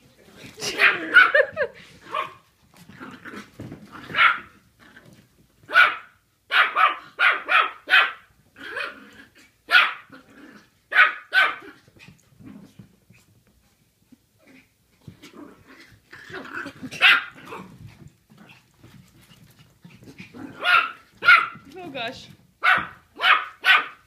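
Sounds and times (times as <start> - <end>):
puppy yapping: 20.6 - 21.6, 22.6 - 24.0.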